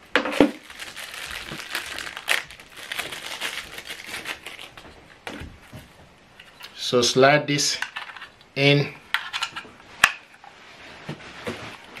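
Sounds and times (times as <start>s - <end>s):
plastic bags crinkling: 0.2s - 5.8s.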